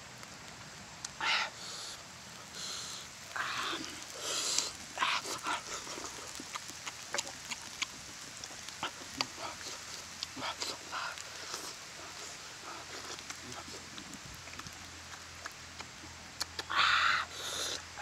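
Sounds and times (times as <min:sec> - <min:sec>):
breathy sucking sounds: 0:01.2 - 0:07.4, 0:16.6 - 0:18.0
lip-smacking and chewing: 0:02.5 - 0:18.0.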